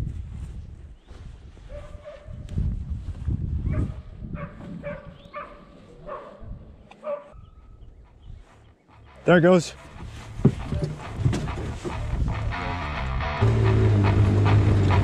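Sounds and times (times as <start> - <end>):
dogs barking in distance: 1.6 - 2.5, 3.6 - 8.6
low rumble: 10.0 - 15.0.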